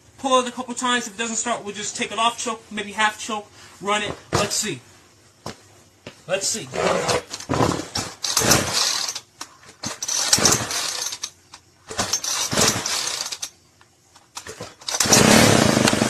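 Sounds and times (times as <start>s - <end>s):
recoil starter pulls: 6.8s - 13.5s, 14.2s - 16.0s
string trimmer engine running: 7.0s - 9.2s, 9.9s - 11.3s, 11.9s - 13.5s, 14.4s - 16.0s.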